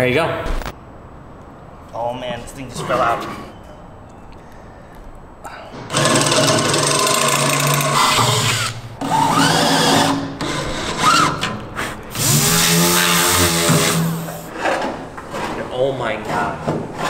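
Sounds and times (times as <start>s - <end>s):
power drill boring through metal: 5.9s - 11.3s, 12.2s - 14.5s.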